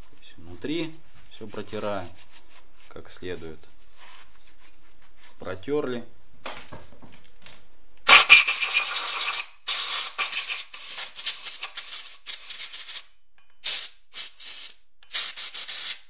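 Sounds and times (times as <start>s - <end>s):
compressed air hissing blasts: 8.1s - 16.0s.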